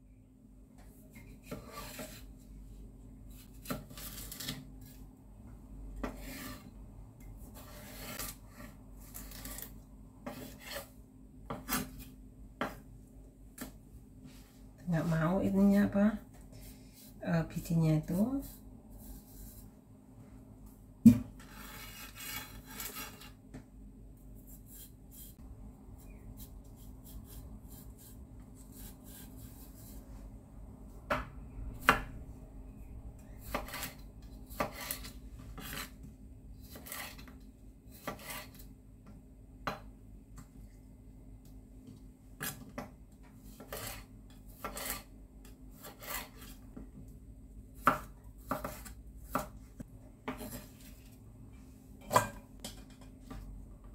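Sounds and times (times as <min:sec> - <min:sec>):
knife scraping cucumber seeds: 0:07.4 - 0:10.9, 0:21.4 - 0:23.4, 0:24.4 - 0:25.4, 0:26.0 - 0:30.1, 0:33.4 - 0:36.0, 0:36.6 - 0:37.3, 0:37.9 - 0:38.6, 0:43.5 - 0:45.1, 0:45.7 - 0:46.6
knife slicing cucumber: 0:33.4 - 0:36.0, 0:37.9 - 0:38.6, 0:43.5 - 0:45.1, 0:47.8 - 0:49.6.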